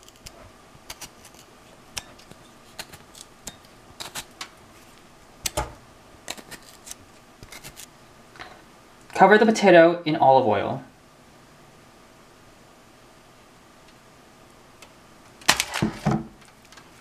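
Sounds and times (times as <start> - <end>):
fork stabbing into potato: 0.1 - 5.6.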